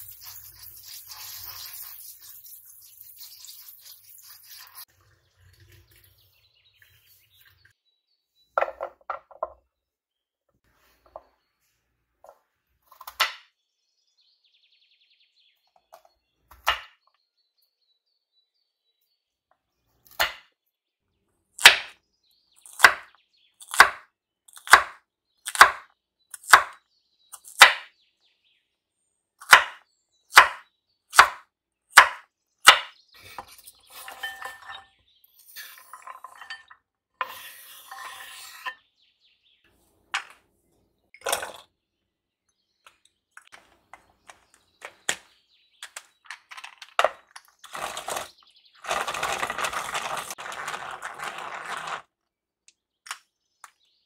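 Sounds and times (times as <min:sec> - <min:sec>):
knife scraping cutting board: 0:37.2 - 0:38.8.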